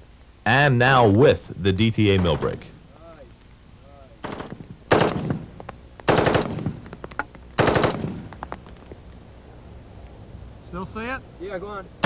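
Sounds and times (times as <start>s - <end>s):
single gunshot: 4.2s - 5.5s, 6.1s - 6.9s, 7.6s - 8.3s
automatic rifle bursts: 6.1s - 6.8s, 7.6s - 8.3s.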